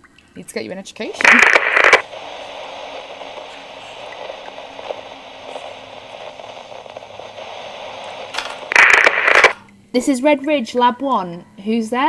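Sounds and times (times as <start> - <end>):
radio static hiss with crackles: 1.0 - 9.7.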